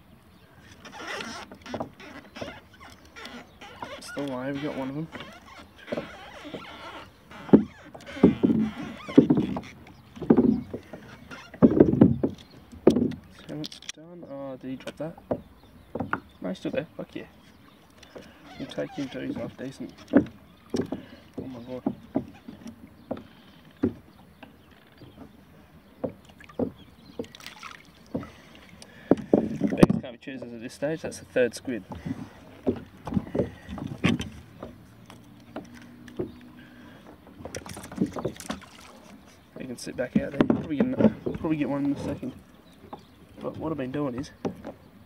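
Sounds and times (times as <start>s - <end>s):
water slapping a kayak hull: 0.0s - 13.6s, 14.7s - 45.0s
soft knocks: 7.4s - 13.3s, 14.8s - 16.4s.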